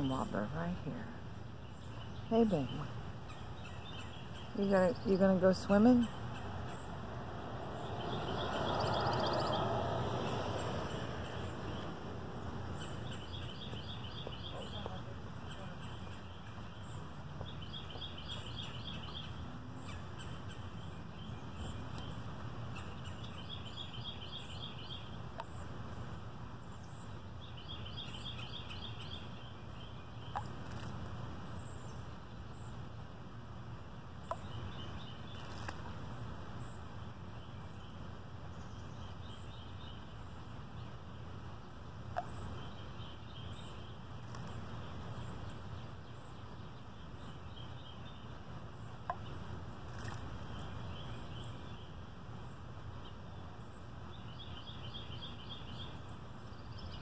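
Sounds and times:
low outdoor rumble: 0.0s - 28.0s
songbird trilling: 1.6s - 25.6s.

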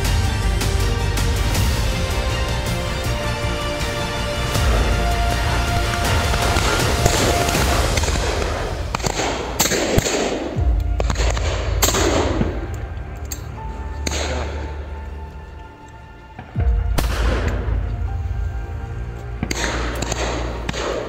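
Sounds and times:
background music: 0.0s - 21.0s
shotgun shots with echo: 5.9s - 12.7s, 19.4s - 21.0s.

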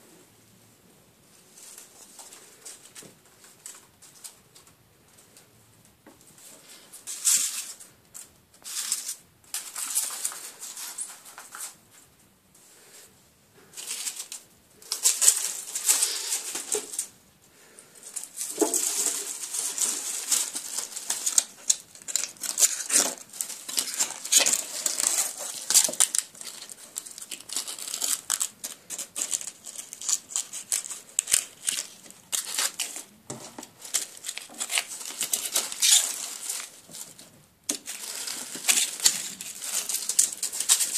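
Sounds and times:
dry leaves rustling: 13.8s - 17.1s, 18.1s - 33.1s, 33.8s - 37.2s, 37.8s - 40.9s.

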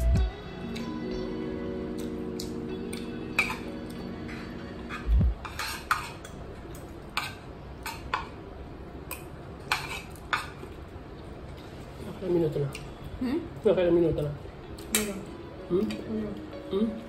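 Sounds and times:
cutlery clinking on a plate: 3.3s - 3.7s, 4.4s - 8.4s.

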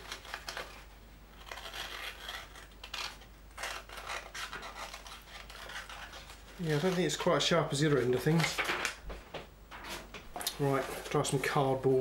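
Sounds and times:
knife scraping and tearing paper: 0.0s - 8.9s.

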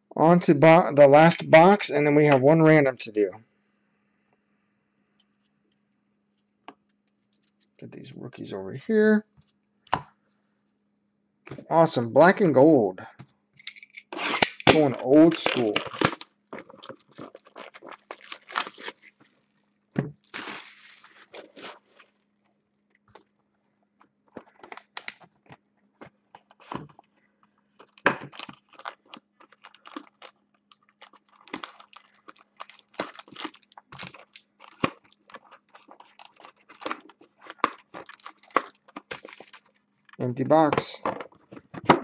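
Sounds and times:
shrink wrap crinkling and tearing: 14.1s - 19.5s, 20.2s - 22.2s, 27.8s - 40.2s.

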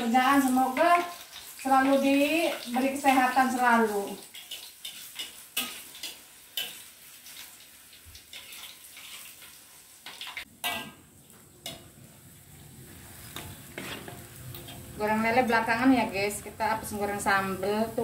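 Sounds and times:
food sizzling in oil: 0.0s - 18.0s
metal spatula scraping a wok: 4.2s - 7.6s, 8.2s - 11.0s, 13.0s - 15.6s.

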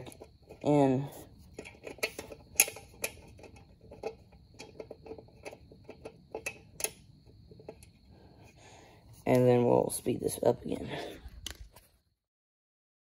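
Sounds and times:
screws clicking while threaded by hand: 1.6s - 7.0s.

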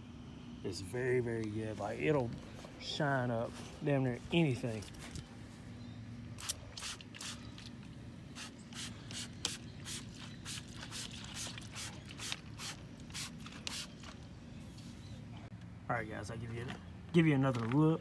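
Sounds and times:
spray bottle squirting: 6.4s - 7.7s, 8.4s - 14.1s.

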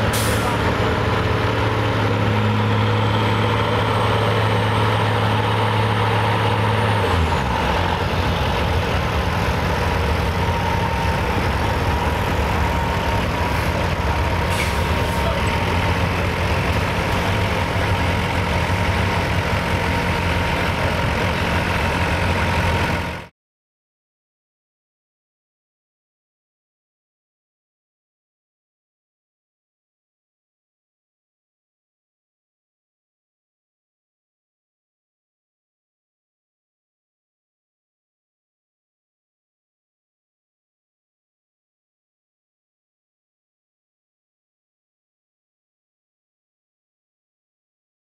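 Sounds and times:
diesel truck engine revving: 0.0s - 23.3s.

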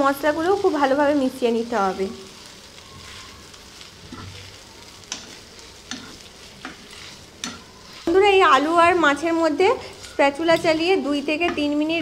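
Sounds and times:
low frying sizzle: 0.0s - 12.0s
spatula scraping frying pan: 1.8s - 12.0s
spatula clacking against pan: 5.0s - 8.8s.

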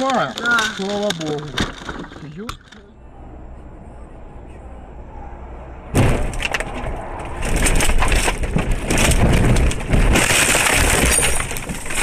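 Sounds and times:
branches snapping: 0.0s - 2.2s
car crashing into brush: 5.9s - 12.0s.

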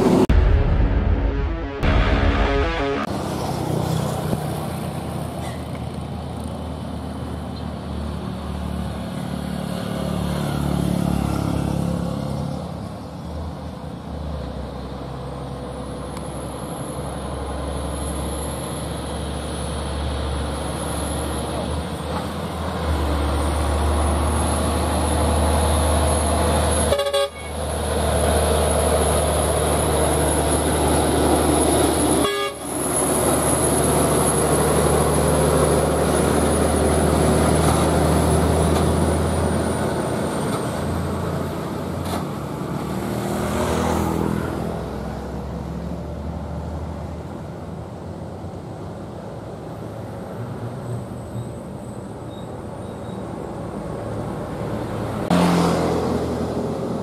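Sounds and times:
truck horn: 0.7s - 3.2s, 26.7s - 27.7s, 32.1s - 32.8s.

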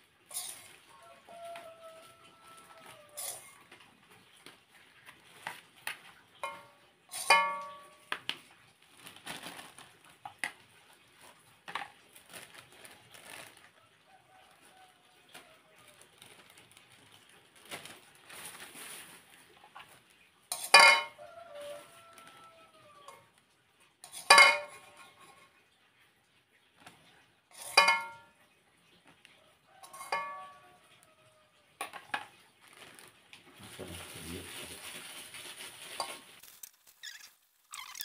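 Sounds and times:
metal spoon clinking on pot: 0.3s - 0.8s, 3.2s - 3.6s, 6.4s - 8.0s, 20.5s - 21.2s, 24.0s - 25.4s, 27.5s - 28.3s, 29.8s - 30.8s
plastic bags crinkling: 7.1s - 13.8s, 15.3s - 20.1s, 21.9s - 22.5s, 32.2s - 38.0s.

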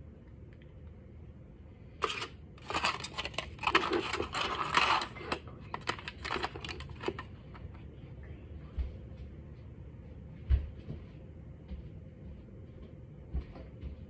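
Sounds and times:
aluminium foil crinkling: 2.0s - 7.3s.

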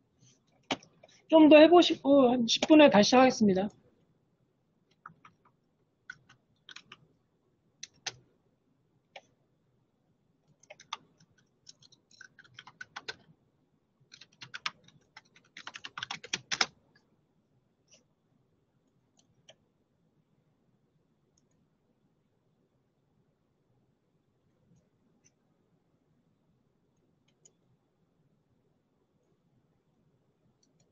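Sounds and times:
computer keyboard typing: 4.9s - 7.0s, 7.8s - 8.2s, 10.5s - 13.3s, 14.1s - 16.8s.

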